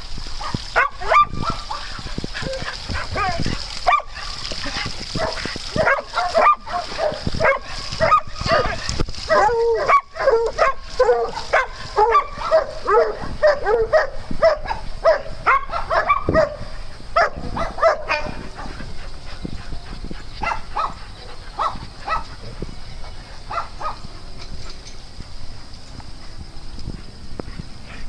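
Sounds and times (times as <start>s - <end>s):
dogs barking: 0.4s - 19.4s, 20.3s - 22.5s, 23.2s - 24.2s.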